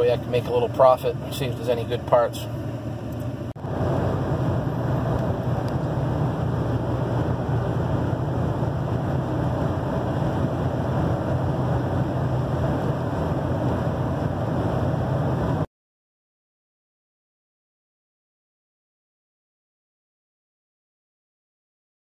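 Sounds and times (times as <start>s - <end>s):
engine drone: 0.0s - 15.7s
road noise: 0.0s - 15.7s
low hum: 1.9s - 15.7s.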